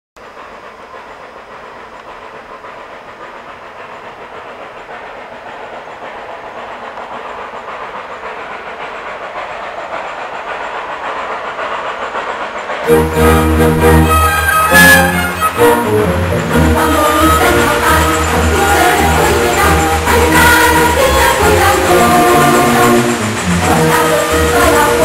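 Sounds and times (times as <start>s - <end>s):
train running: 0.2s - 25.0s.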